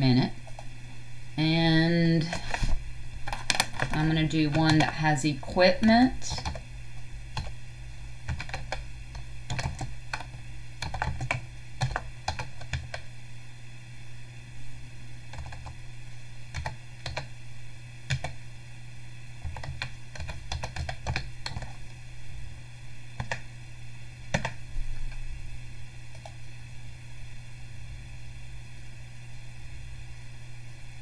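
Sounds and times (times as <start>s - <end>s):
steady low hum: 0.0s - 31.0s
keyboard typing: 3.2s - 5.1s, 6.3s - 6.7s, 7.3s - 7.6s, 8.3s - 13.1s, 15.3s - 15.8s, 16.5s - 17.3s, 18.1s - 18.4s, 19.4s - 21.8s, 23.2s - 23.5s, 24.3s - 25.2s.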